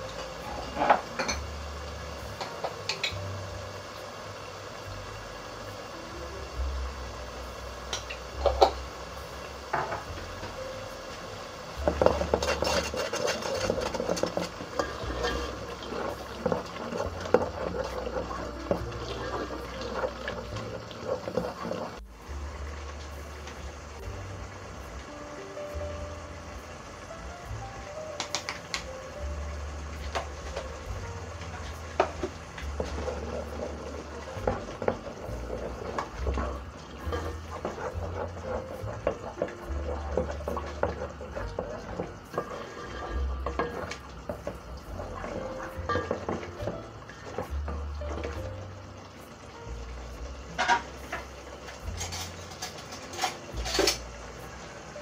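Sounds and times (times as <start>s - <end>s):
spoon scraping metal pot: 11.9s - 22.0s, 32.8s - 46.5s, 50.6s - 54.0s
spoon stirring thick sauce: 11.9s - 22.0s, 32.8s - 47.4s.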